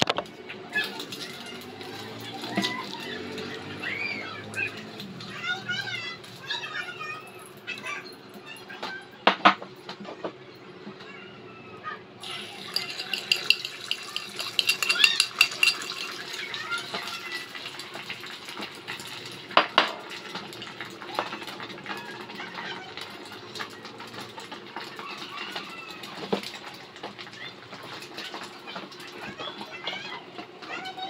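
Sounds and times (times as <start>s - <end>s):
metal clinks of pans and utensils: 12.2s - 17.2s
egg sizzling in hot oil: 12.2s - 22.2s.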